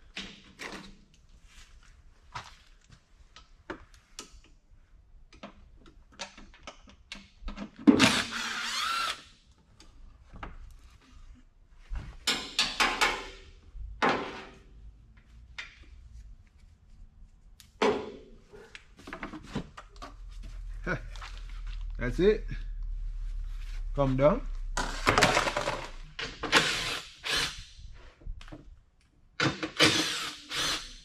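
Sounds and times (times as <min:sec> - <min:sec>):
clicks and rattles of fasteners: 0:05.2 - 0:08.0
cordless power tool spinning: 0:08.0 - 0:09.2, 0:26.5 - 0:27.7, 0:29.8 - 0:31.0.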